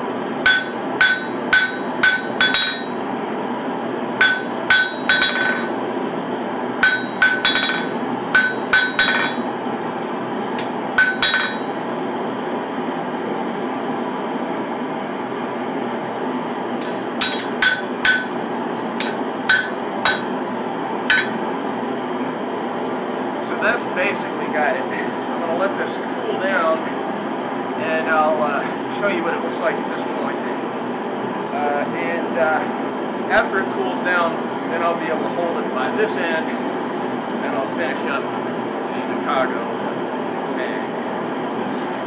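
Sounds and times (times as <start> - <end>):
shop machinery hum: 0.0 - 42.0
hammer striking metal blade: 0.5 - 3.0, 4.2 - 5.8, 6.8 - 9.5, 10.6 - 11.8, 16.8 - 18.4, 19.0 - 20.5, 21.1 - 21.4.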